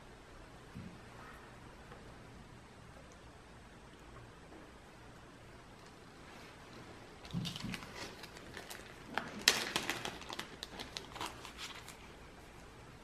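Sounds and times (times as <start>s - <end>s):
plastic bag crinkling: 7.2s - 12.2s.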